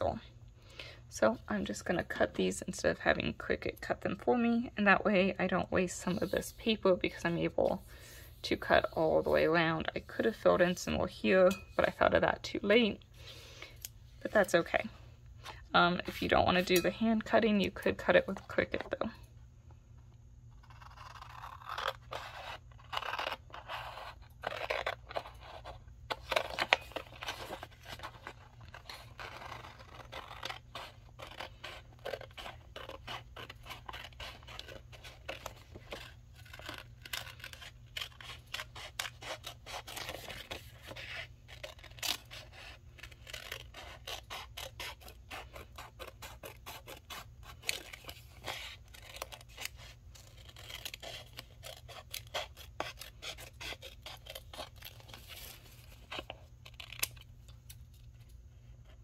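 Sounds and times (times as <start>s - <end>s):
scissors snipping paper: 20.6s - 57.3s.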